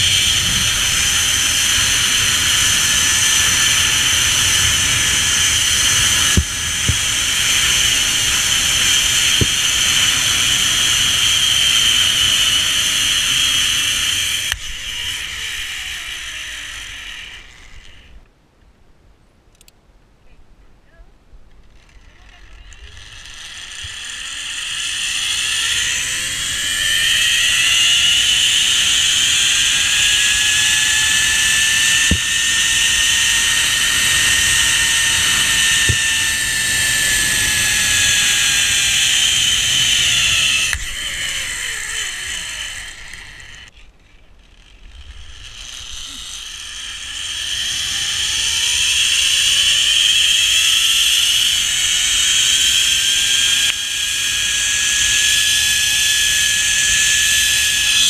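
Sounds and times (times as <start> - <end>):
zipline pulleys whining on cable: 0.0 - 18.3, 21.5 - 58.0.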